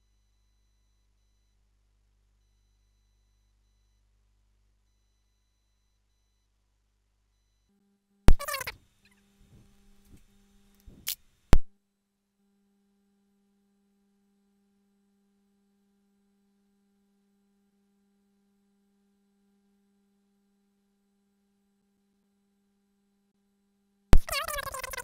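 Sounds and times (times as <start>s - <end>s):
faint steady low hum: 0.0s - 11.7s.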